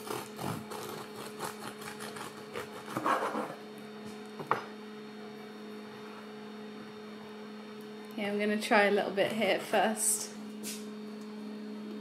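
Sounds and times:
bread knife sawing through loaf: 0.0s - 3.6s
electrical hum: 0.0s - 12.0s.

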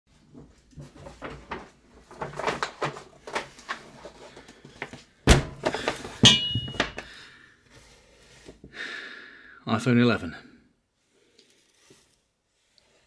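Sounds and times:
paper bag rustling: 0.6s - 7.0s
drink can knock and metallic ring: 6.2s - 7.0s.

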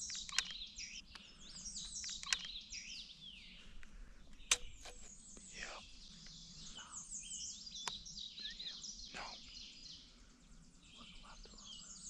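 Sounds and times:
sharp click: 0.0s - 2.6s, 4.3s - 5.1s
songbirds chirping and trilling: 0.0s - 12.0s.

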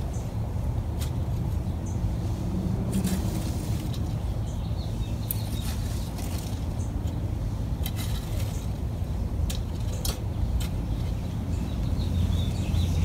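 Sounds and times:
rake scraping rocky soil: 2.5s - 4.3s, 5.3s - 6.8s, 7.8s - 11.0s.

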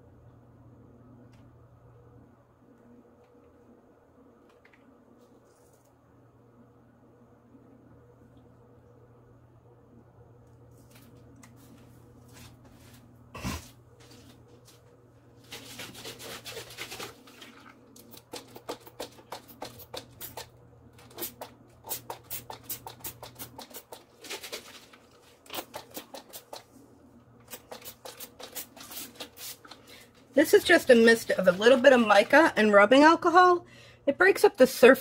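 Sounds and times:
spray bottle spritzes: 21.1s - 23.9s, 27.5s - 29.6s.

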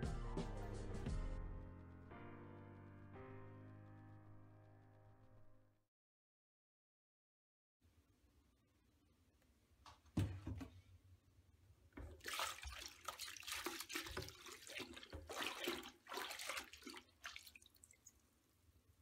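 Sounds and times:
knock: 10.2s - 10.8s
water splashing in a bucket: 11.9s - 18.2s.

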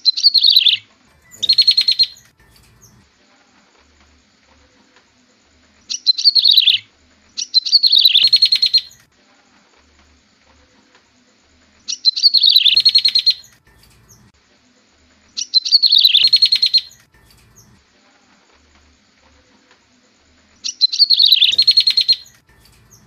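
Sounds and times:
bird song with fast trill: 0.0s - 3.1s, 5.8s - 9.0s, 11.8s - 14.3s, 15.4s - 17.8s, 20.6s - 23.0s.

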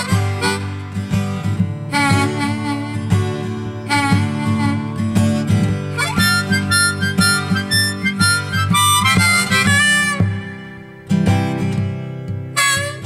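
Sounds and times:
harmonica solo: 0.0s - 11.3s, 12.5s - 13.0s
strummed acoustic guitar: 0.0s - 13.0s.

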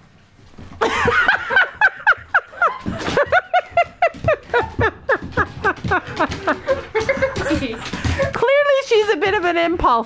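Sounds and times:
people laughing: 0.8s - 8.4s.

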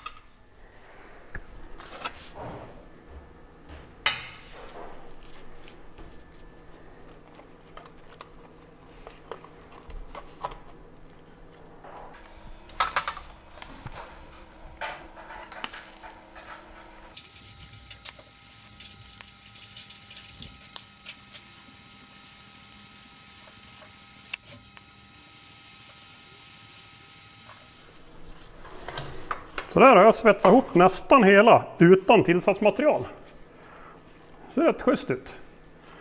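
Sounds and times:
welder humming and crackling: 4.8s - 31.1s.

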